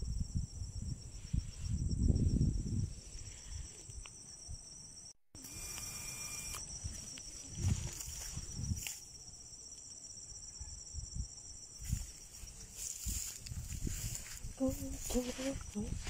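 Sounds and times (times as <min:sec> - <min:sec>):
insects chirring: 0:00.0 - 0:16.0
phone rustling through grass: 0:05.9 - 0:09.1, 0:11.8 - 0:16.0.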